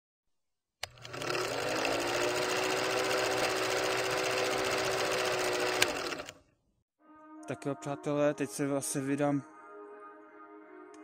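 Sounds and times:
film projector clatter: 0.8s - 6.4s.

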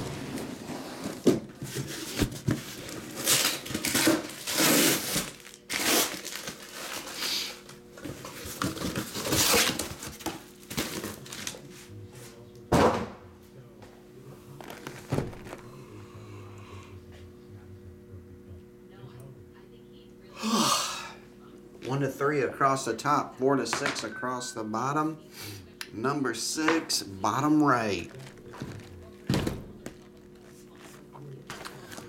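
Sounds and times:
plastic wrap crinkling: 2.8s - 7.4s, 14.6s - 15.6s, 28.0s - 30.9s
boxes thunking on table: 28.2s - 29.8s.

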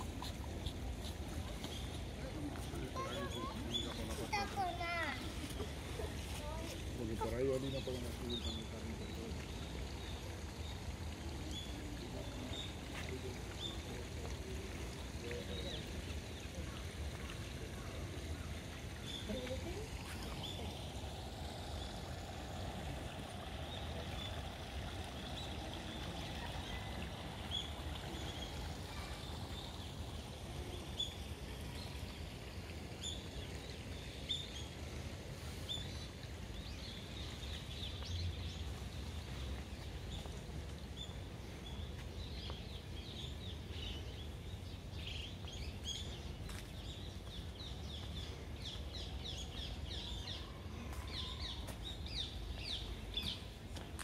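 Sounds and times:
low rumble and hiss: 0.0s - 54.0s
small birds chirping: 35.4s - 54.0s.

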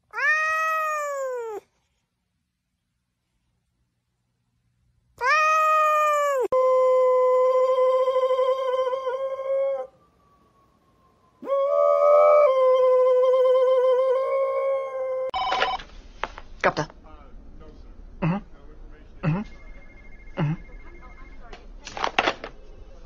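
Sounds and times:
dog howling: 5.3s - 10.0s, 11.4s - 15.4s.

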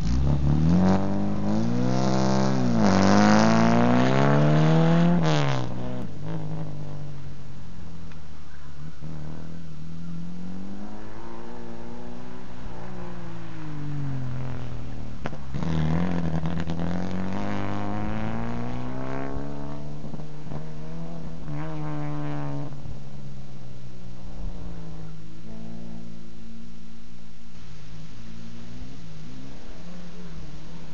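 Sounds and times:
car engine revving: 0.0s - 30.9s.

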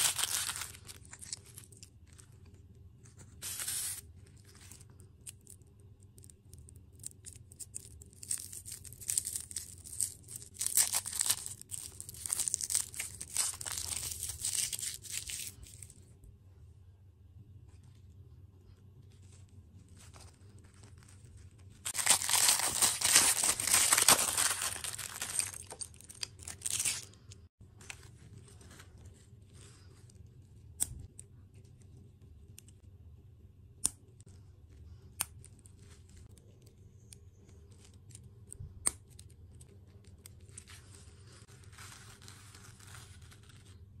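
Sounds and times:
plastic wrapper crinkling: 0.0s - 2.3s, 7.0s - 15.9s, 20.0s - 27.3s.

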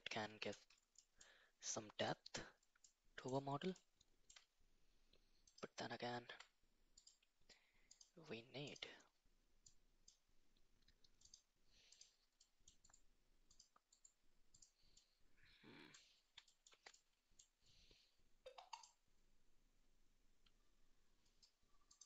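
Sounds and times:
mouse and keyboard clicks: 11.1s - 12.1s, 16.3s - 17.5s, 18.5s - 19.0s, 21.3s - 22.0s.

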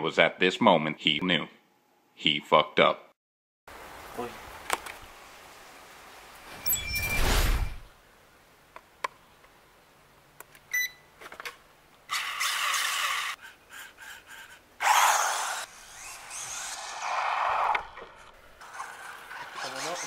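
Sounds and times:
glitchy whoosh: 6.5s - 7.9s
short beep: 6.6s - 7.7s
toy car electric motor whirring: 12.1s - 20.0s.

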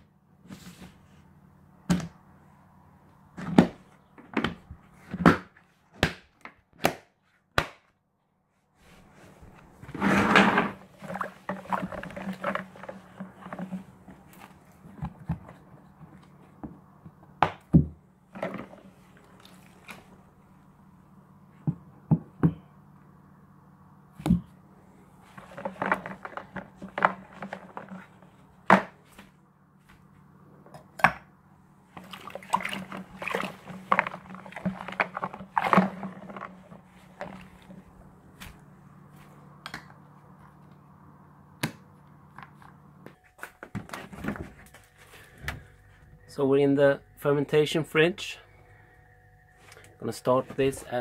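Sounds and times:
steady low hum: 8.0s - 51.0s
hand sloshing liquid in plastic bucket: 10.6s - 16.3s, 18.3s - 20.2s, 31.9s - 38.7s.

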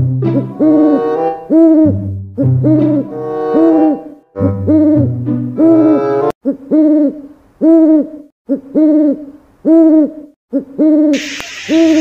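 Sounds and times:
low bass line: 0.0s - 0.9s.

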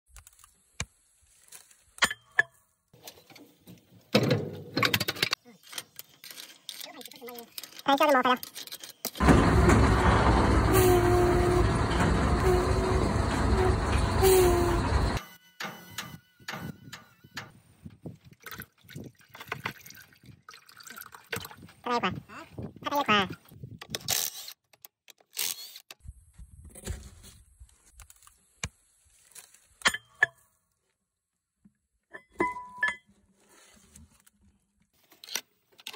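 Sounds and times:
metal objects clinking: 4.9s - 9.3s.

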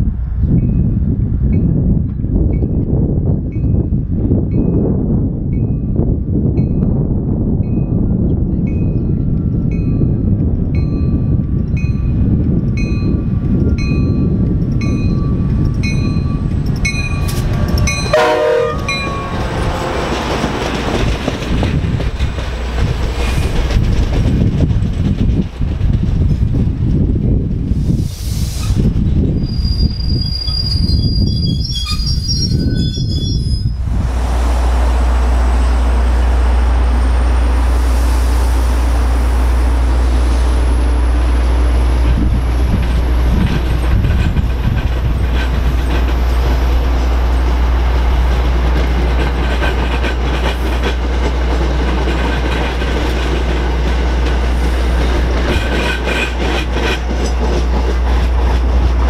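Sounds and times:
train rumbling past: 0.0s - 59.0s
train wheels squealing: 29.4s - 33.8s
wheels clicking over rails: 41.3s - 59.0s.

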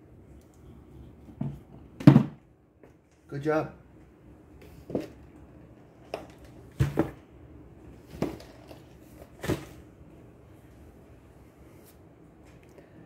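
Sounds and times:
knocks and clatters of packages: 2.0s - 2.4s, 6.1s - 7.2s, 8.0s - 9.8s.

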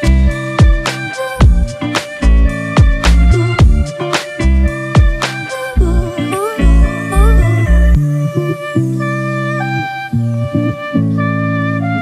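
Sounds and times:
background music with steady beat: 0.0s - 9.3s.

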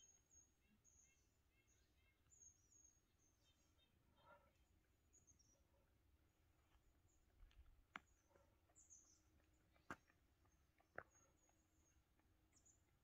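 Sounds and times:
faint bird chirps: 0.0s - 6.0s.

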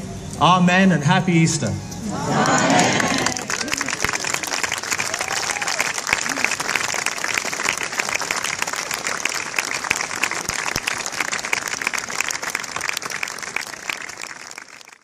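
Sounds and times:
large crowd clapping: 2.2s - 15.0s.

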